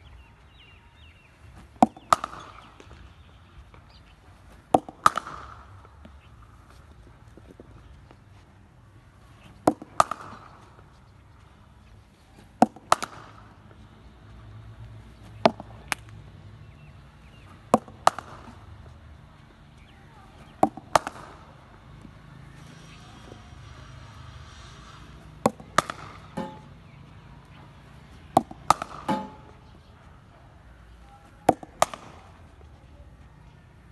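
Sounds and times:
cricket bat striking ball: 0:01.6 - 0:03.2, 0:04.6 - 0:06.3, 0:09.4 - 0:11.0, 0:12.4 - 0:13.8, 0:15.2 - 0:18.9, 0:20.4 - 0:23.7, 0:24.4 - 0:27.0, 0:28.0 - 0:29.8, 0:31.4 - 0:32.5.

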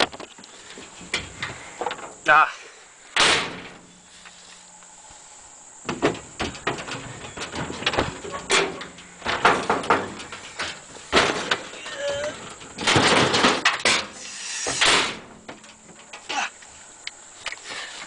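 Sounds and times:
tools rummaged knocks and clicks: 0:05.8 - 0:14.2.

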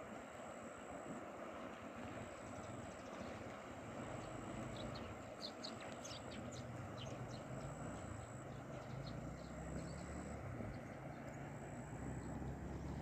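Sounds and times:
turbulent river water rushing: 0:00.0 - 0:13.0
small birds chirping: 0:04.2 - 0:13.0.

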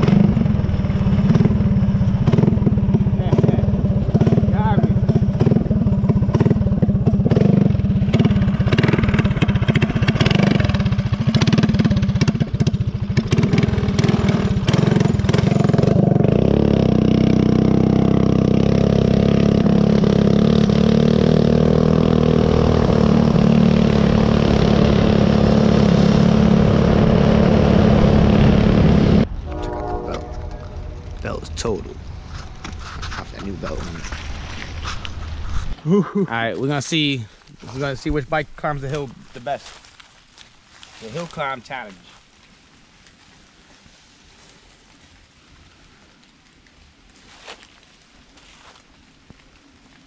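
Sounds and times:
dirt bike engine running: 0:00.0 - 0:36.9.

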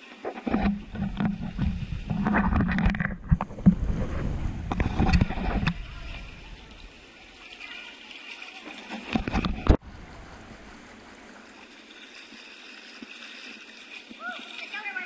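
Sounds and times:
water splashing and sloshing: 0:00.0 - 0:15.0
heavy rumble: 0:00.7 - 0:06.9.

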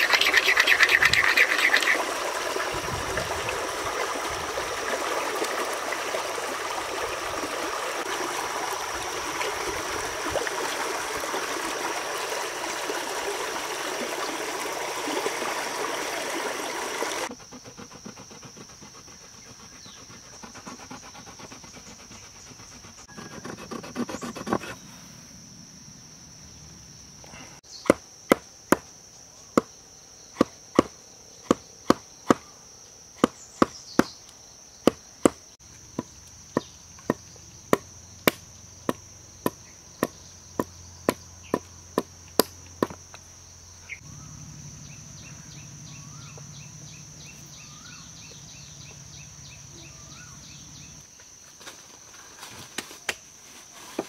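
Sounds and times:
high-pitched insect drone: 0:00.0 - 0:02.2.

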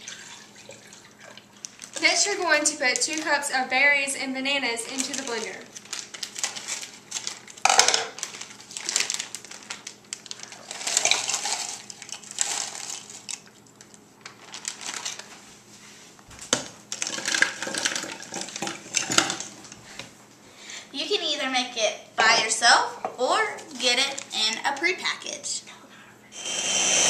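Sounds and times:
frozen fruit clattering into glass: 0:07.6 - 0:09.2, 0:10.5 - 0:13.4, 0:16.9 - 0:19.5.

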